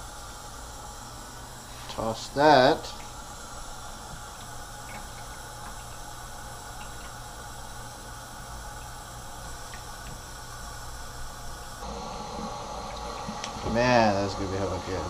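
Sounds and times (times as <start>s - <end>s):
faucet running into sink: 2.5s - 10.8s, 11.8s - 15.0s.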